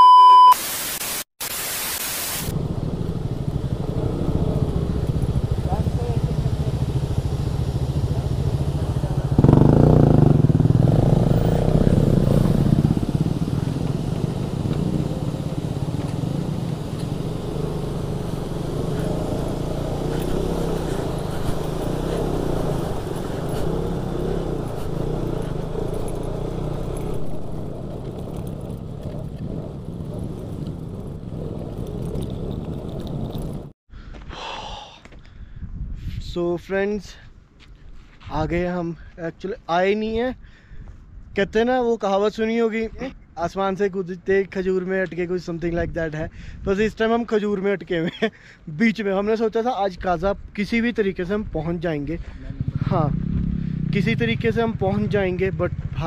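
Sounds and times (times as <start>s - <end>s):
motorcycle engine running: 2.5s - 33.7s, 52.2s - 56.0s.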